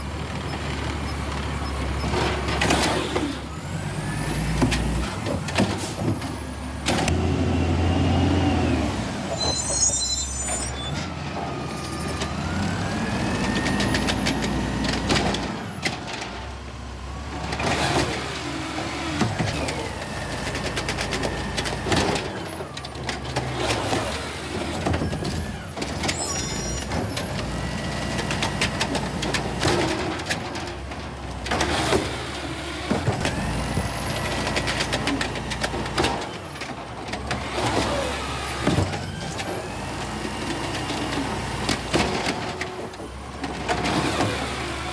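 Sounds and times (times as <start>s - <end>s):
truck engine revving: 6.5s - 9.3s.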